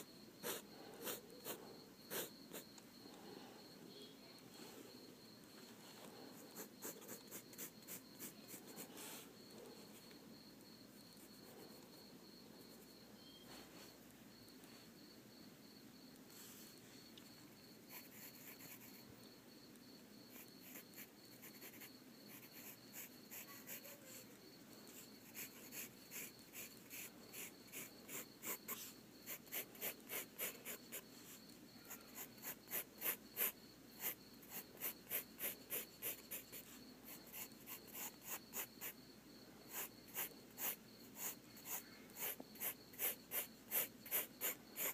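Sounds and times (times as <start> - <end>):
pencil scratching on paper: 0.4 - 2.7, 6.3 - 9.3, 17.9 - 19.0, 20.3 - 24.2, 24.9 - 31.3, 31.9 - 39.0, 39.7 - 44.9
faint high-pitched tone: 3.0 - 7.6, 12.8 - 13.9.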